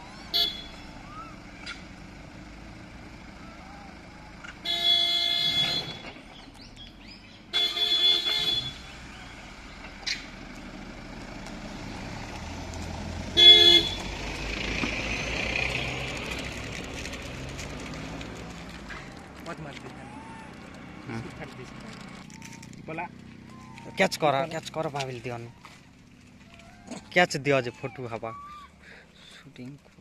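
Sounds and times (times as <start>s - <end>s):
car horn honking: 0.2s - 1.0s, 4.6s - 6.2s, 7.5s - 9.1s, 13.3s - 14.2s
car driving past: 9.0s - 27.0s.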